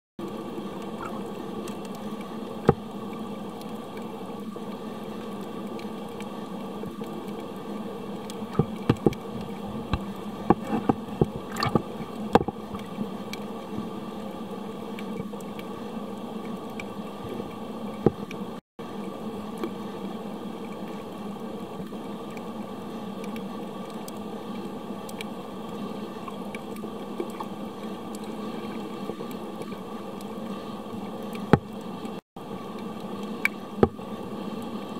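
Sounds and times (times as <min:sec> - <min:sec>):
muffled underwater hum and hiss: 0:00.2 - 0:34.9
sharp clicks and knocks: 0:08.5 - 0:12.6.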